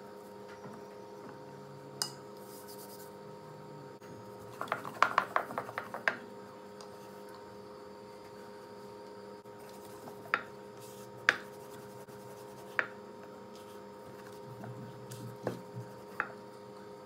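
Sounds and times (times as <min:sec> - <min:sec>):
electrical hum: 0:00.0 - 0:17.0
rolling pin knocking on board: 0:04.6 - 0:06.2.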